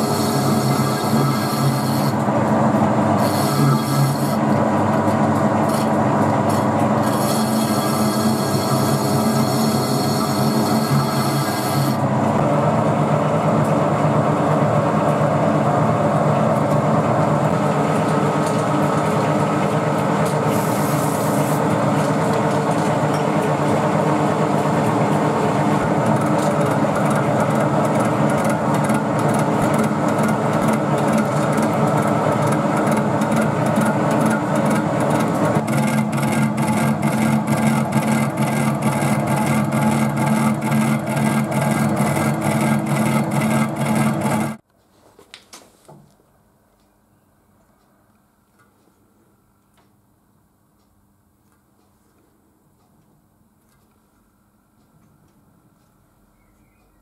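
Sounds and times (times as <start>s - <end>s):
metal lathe cutting: 0.0s - 12.5s, 16.0s - 44.6s.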